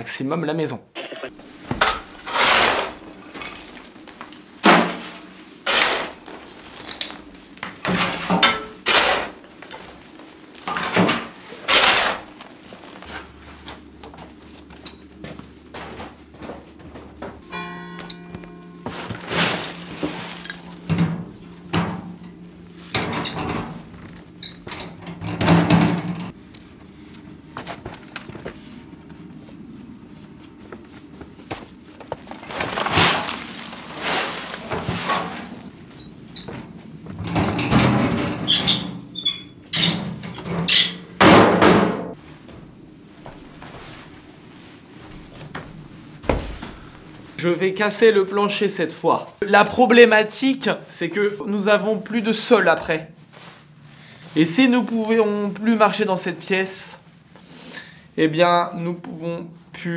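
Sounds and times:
faint high squeaks: 13.1 - 15.8, 16.4 - 18.7, 23.0 - 25.2, 30.6 - 31.8, 36.0 - 37.1, 38.5 - 41.1.

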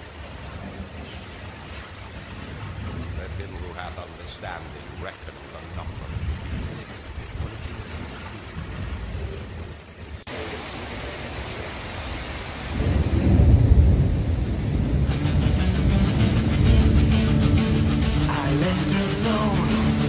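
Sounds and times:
thunder rumbling: 0.0 - 10.0, 12.6 - 18.2
rain falling: 0.0 - 20.0.

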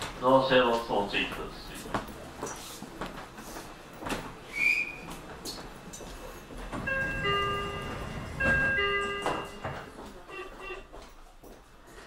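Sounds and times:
two-note door chime: 6.9 - 10.8.

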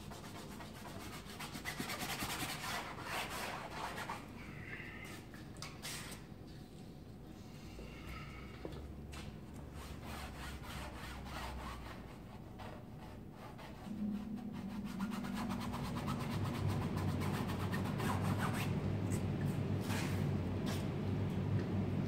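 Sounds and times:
low steady hum: 2.6 - 22.0
paintbrush scrubbing canvas: 9.7 - 18.7.

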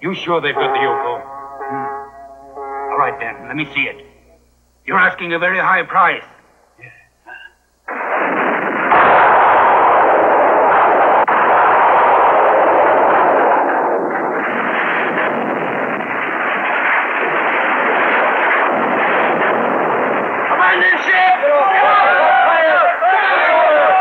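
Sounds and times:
explosion rumble: 7.9 - 20.7.

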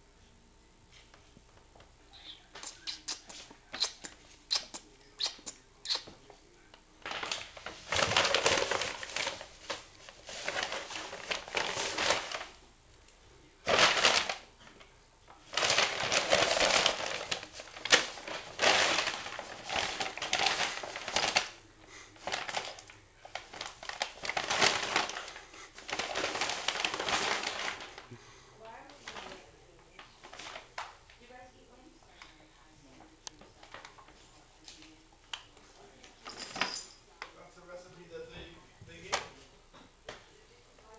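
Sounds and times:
paper bag crinkling and rustling: 7.0 - 12.6, 13.6 - 14.5, 15.5 - 28.1, 28.9 - 30.9.

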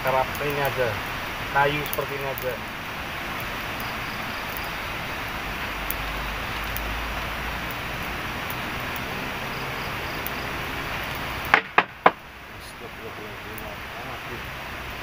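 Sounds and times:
campfire hissing and crackling: 0.0 - 15.0
sharp knocks: 11.5 - 12.2.

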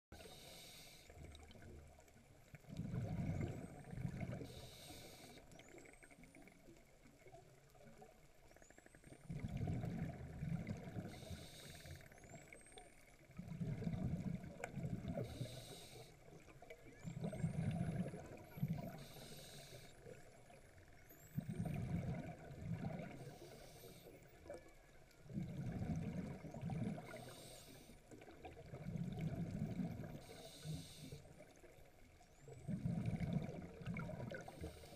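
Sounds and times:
diver breathing underwater: 0.2 - 1.1, 15.1 - 16.2, 18.0 - 20.0, 26.7 - 28.0, 30.0 - 31.2.

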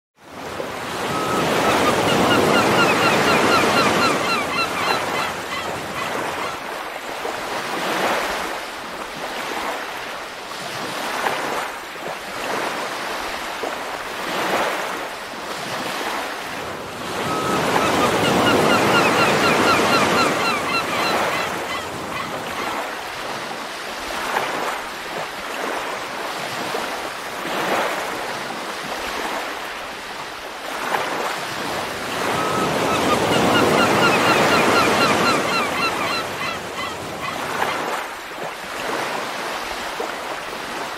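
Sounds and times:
ocean waves breaking: 0.2 - 40.9
faint bird calls: 1.0 - 6.6, 17.2 - 22.8, 32.3 - 37.9.

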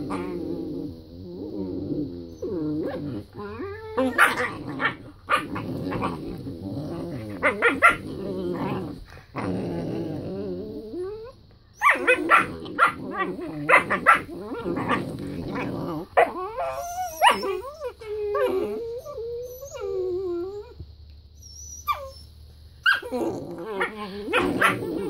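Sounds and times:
puppies growling: 0.0 - 20.8, 22.9 - 25.0
puppies barking and yipping: 11.8 - 13.0, 16.2 - 18.3.

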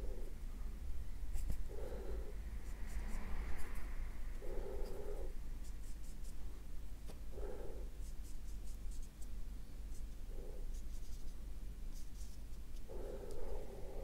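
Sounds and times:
steady low hum: 0.0 - 14.0
paintbrush scratching on paper: 1.3 - 1.8, 2.5 - 3.9, 4.8 - 6.4, 7.8 - 13.7.

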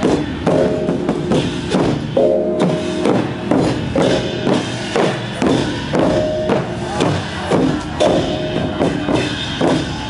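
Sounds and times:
barrel drums beating: 0.0 - 10.0
hand cymbals clashing: 0.0 - 10.0
gongs ringing: 0.3 - 7.0, 7.9 - 9.7.

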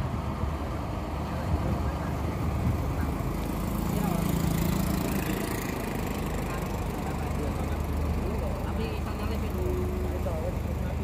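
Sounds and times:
bus diesel engine driving past: 0.0 - 11.0.

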